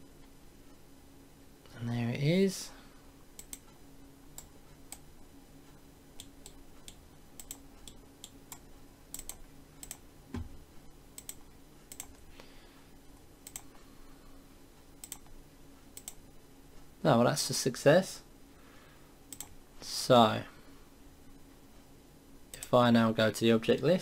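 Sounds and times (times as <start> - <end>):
low steady hum: 0.0 - 24.0
computer mouse clicking: 3.4 - 5.1, 6.2 - 10.5, 11.2 - 12.2, 13.4 - 13.8, 15.0 - 15.3, 16.0 - 16.2, 19.3 - 19.6
soft low thump: 10.3 - 10.6.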